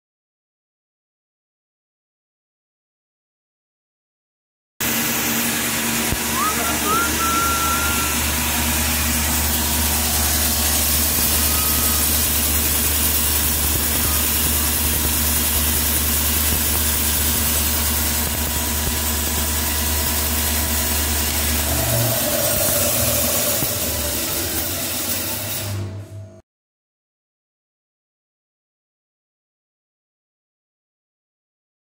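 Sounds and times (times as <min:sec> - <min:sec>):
bandsaw motor hum: 0:04.8 - 0:26.4.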